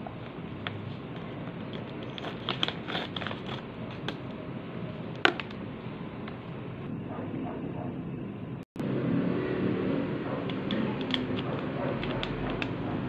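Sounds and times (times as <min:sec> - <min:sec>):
plastic packaging crinkling: 0:00.4 - 0:04.3.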